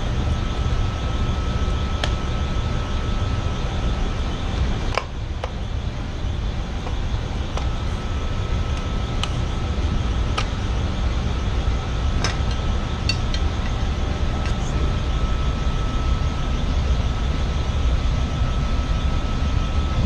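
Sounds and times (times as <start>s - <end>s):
air handling equipment rumble: 0.0s - 20.0s
faint high whine: 0.0s - 20.0s.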